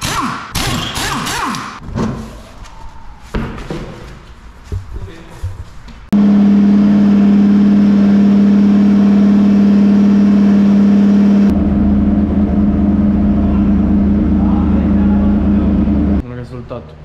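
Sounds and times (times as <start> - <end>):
car engine running at steady revs: 6.2 - 16.2.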